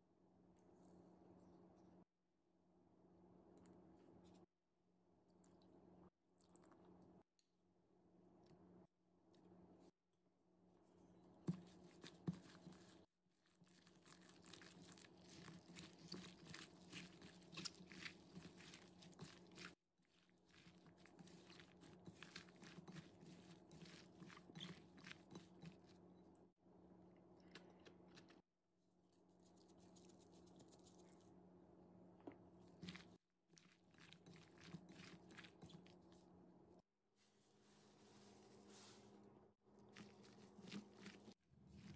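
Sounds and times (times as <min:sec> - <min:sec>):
wet crunching and squishing: 0:13.6 - 0:26.0.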